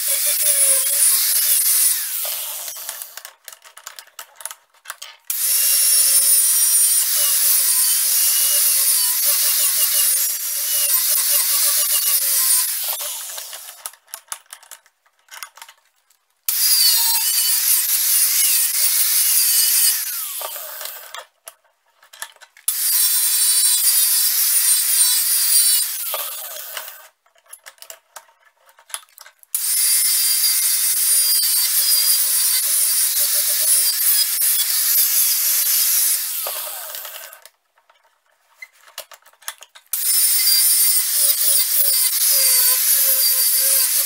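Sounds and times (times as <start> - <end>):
angle grinder wire brushing metal: 5.5 - 13.8, 40.0 - 44.0.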